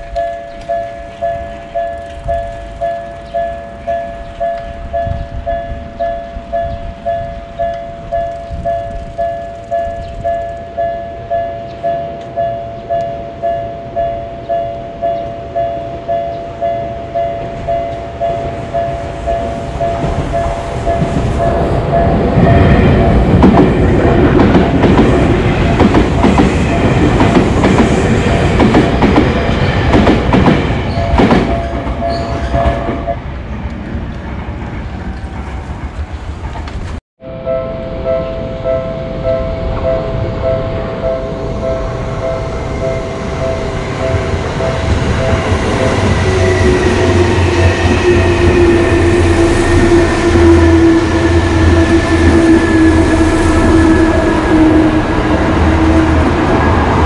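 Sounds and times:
level crossing warning bell: 0.0s - 24.4s, 30.8s - 33.2s, 37.3s - 54.7s
train rumble and wheel clatter: 0.0s - 37.0s, 38.0s - 57.0s.

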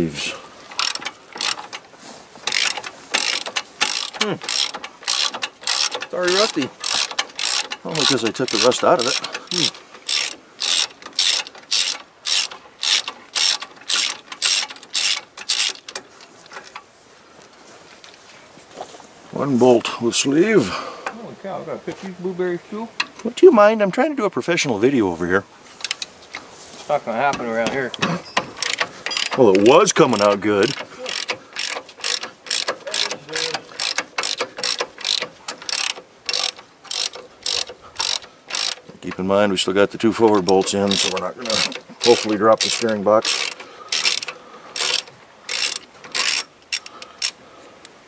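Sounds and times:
hand ratchet clicking: 0.7s - 16.8s, 25.8s - 26.4s, 27.3s - 39.3s, 40.2s - 48.0s.

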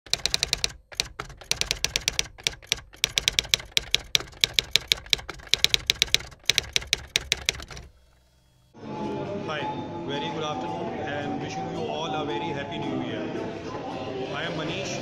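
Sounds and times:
typewriter key strikes: 0.1s - 7.9s.

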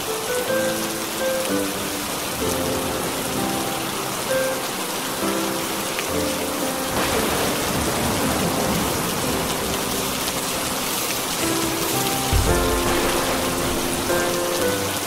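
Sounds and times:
steady rain hiss: 0.0s - 15.0s
low thud: 12.3s - 14.6s.

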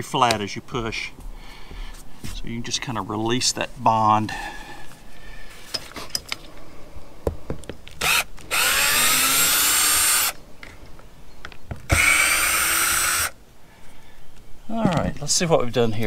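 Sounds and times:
cordless drill driving screws: 8.0s - 10.4s, 11.9s - 13.4s.

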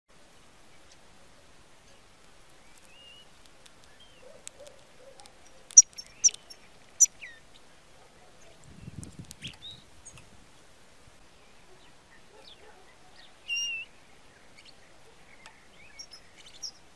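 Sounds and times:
bird chirping: 2.6s - 10.2s, 11.3s - 16.9s.

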